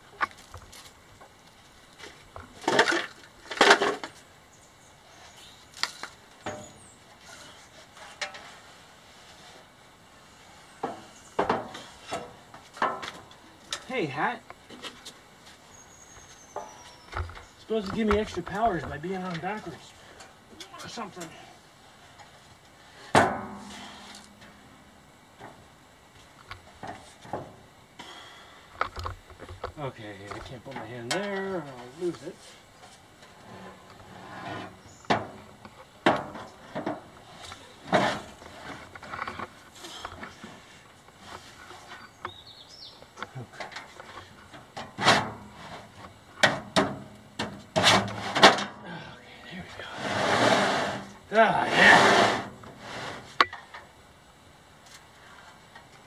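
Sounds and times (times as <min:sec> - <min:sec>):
loud metal clank: 0:23.1 - 0:24.6.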